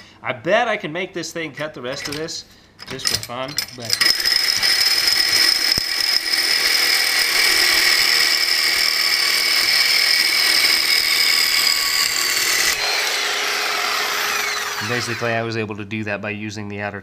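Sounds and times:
reciprocating saw cutting: 0:04.0 - 0:15.4.

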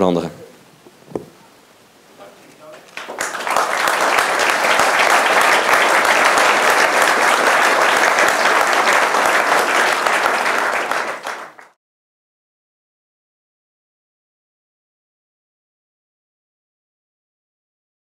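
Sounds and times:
audience applauding: 0:02.6 - 0:11.8.

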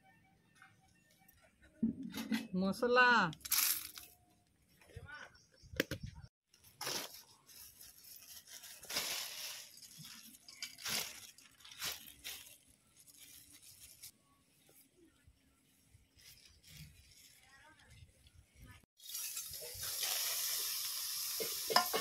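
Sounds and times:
plastic bag rustling: 0:06.5 - 0:14.1, 0:16.0 - 0:18.0.

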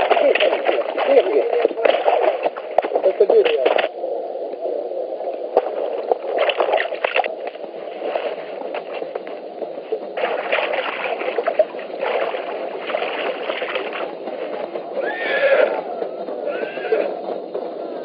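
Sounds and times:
water splashing and sloshing: 0:00.0 - 0:18.0
horse neighing: 0:15.0 - 0:17.2.

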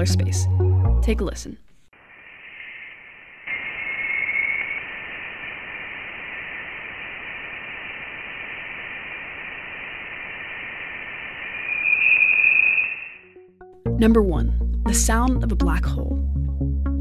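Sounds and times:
steady hiss: 0:02.0 - 0:13.2
electronic tone: 0:02.7 - 0:05.2, 0:10.4 - 0:13.5.

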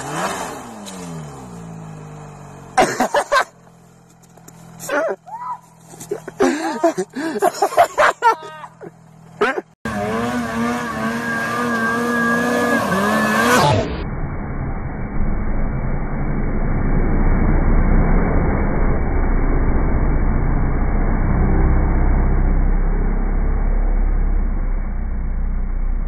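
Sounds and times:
snowmobile engine at high revs: 0:00.0 - 0:14.0.

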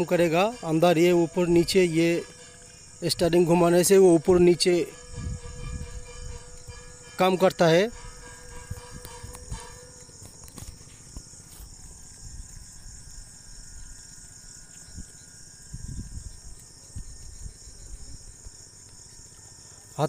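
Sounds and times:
high-pitched insect chorus: 0:00.0 - 0:20.0.

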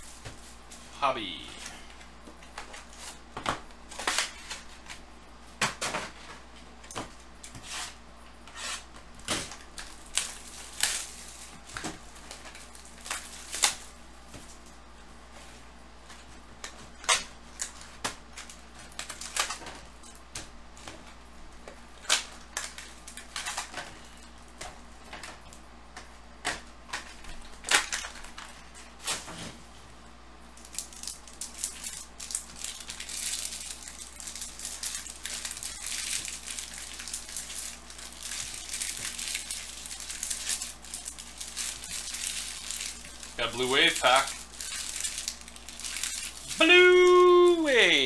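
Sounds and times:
card packs crackling and tapping: 0:00.0 - 0:07.7, 0:09.0 - 0:14.8, 0:15.4 - 0:29.6, 0:30.5 - 0:48.0
wrappers crinkling as torn open: 0:09.2 - 0:14.0, 0:16.6 - 0:20.2, 0:21.9 - 0:25.5, 0:26.9 - 0:29.2, 0:30.6 - 0:48.0.

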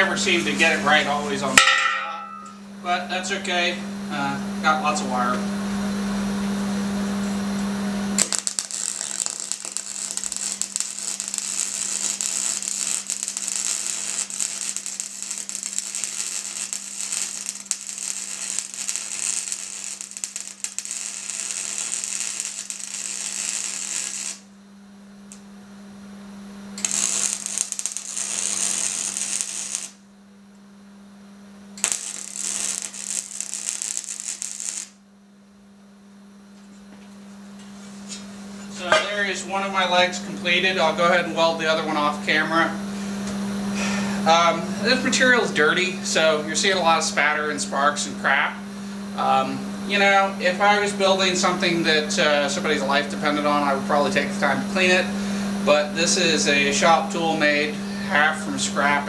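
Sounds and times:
steady low hum: 0:00.0 - 0:59.0
welding arc crackle: 0:08.1 - 0:24.5, 0:26.8 - 0:30.0, 0:31.8 - 0:35.0.

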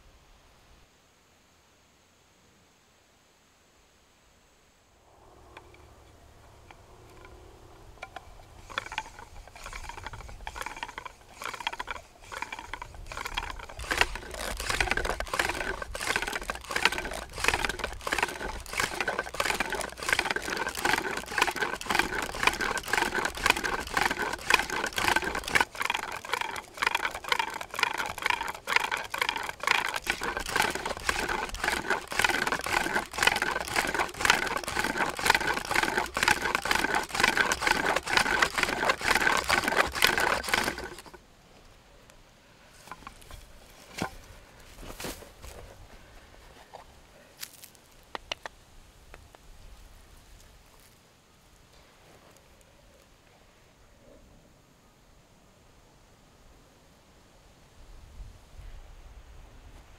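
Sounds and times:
wooden drill grinding and squeaking: 0:08.0 - 0:41.2, 0:42.8 - 0:44.3.

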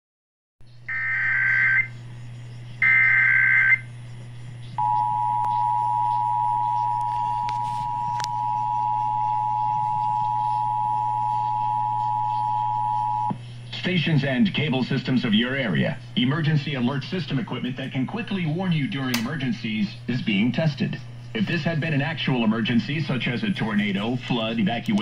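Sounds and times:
low hum: 0:00.6 - 0:13.8
two-tone alert signal: 0:04.8 - 0:13.3.

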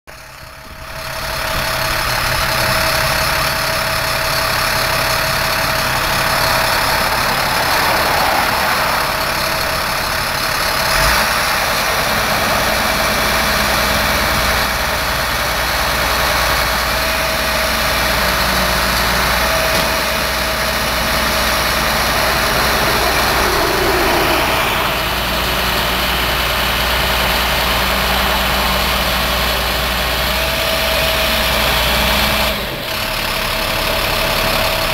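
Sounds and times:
crane engine running: 0:00.1 - 0:34.9.

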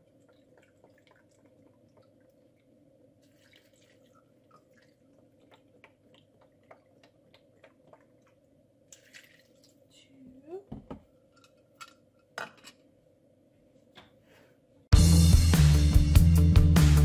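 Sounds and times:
broth pouring into a cup: 0:00.0 - 0:09.8
small drips and ticks: 0:00.0 - 0:09.9.

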